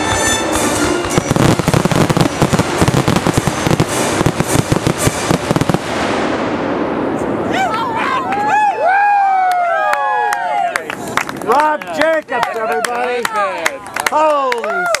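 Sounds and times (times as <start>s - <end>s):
fireworks bangs and crackle: 0.0s - 8.4s.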